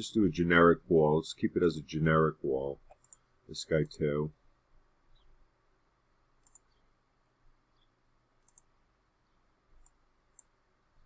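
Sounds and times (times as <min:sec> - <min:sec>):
computer mouse clicks: 0:02.9 - 0:04.0, 0:06.4 - 0:06.8, 0:08.4 - 0:08.7, 0:09.8 - 0:10.6.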